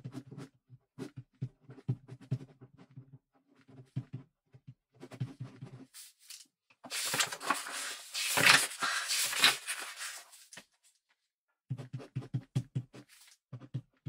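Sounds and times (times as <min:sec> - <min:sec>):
ballpoint pen writing on paper: 0:11.7 - 0:14.0.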